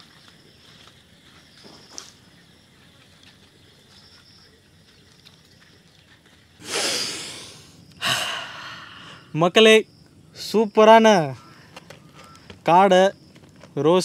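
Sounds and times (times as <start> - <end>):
hissing rushes of air: 6.6 - 7.8.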